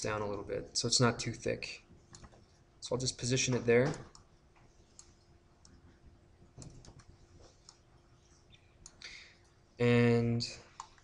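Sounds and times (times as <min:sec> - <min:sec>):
faint steady hum: 0:00.0 - 0:11.0
computer mouse clicks: 0:02.1 - 0:02.5, 0:03.8 - 0:05.8, 0:06.6 - 0:07.8, 0:10.7 - 0:11.0.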